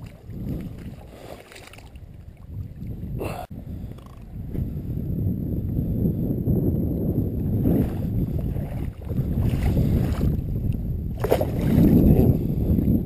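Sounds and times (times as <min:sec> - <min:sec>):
water sloshing: 0:00.0 - 0:03.1, 0:07.8 - 0:10.4
wind rumble on microphone: 0:00.0 - 0:13.0
sharp splash in water: 0:11.2 - 0:11.8.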